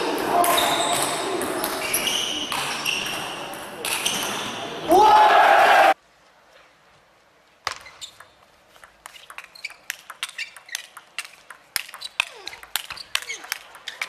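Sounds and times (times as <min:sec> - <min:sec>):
shoes squeaking on floor: 0:00.4 - 0:04.7, 0:07.6 - 0:14.0
table tennis ball clicking: 0:07.7 - 0:14.0.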